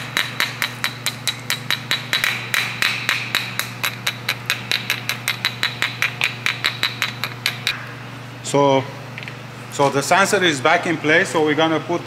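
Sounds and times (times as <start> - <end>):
hammer tapping on metal: 0.0 - 7.8.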